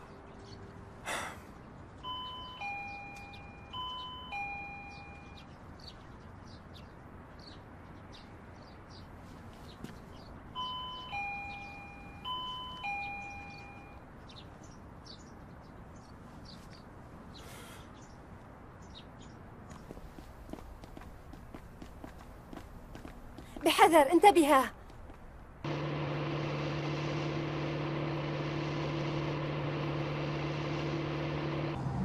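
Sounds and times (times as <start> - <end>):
birds chirping faintly: 0.0 - 31.8
two-tone doorbell chime: 2.0 - 5.5, 10.6 - 14.0.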